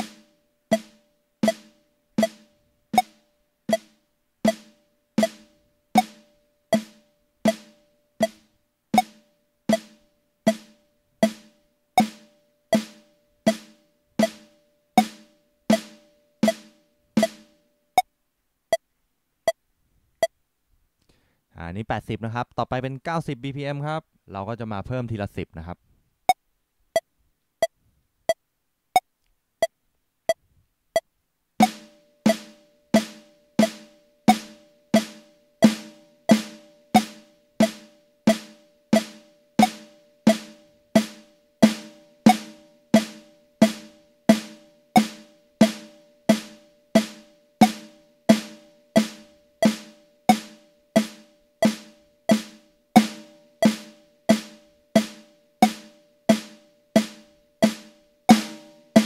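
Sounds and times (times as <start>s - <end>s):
electronic drum pad strokes: 0.0s - 3.9s, 9.0s - 17.4s, 31.6s - 59.0s
metronome clicking: 0.0s - 18.1s, 31.0s - 43.9s, 44.9s - 59.0s.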